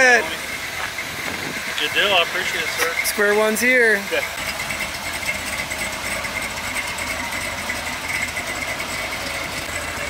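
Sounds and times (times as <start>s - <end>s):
truck engine running: 0.0s - 10.0s.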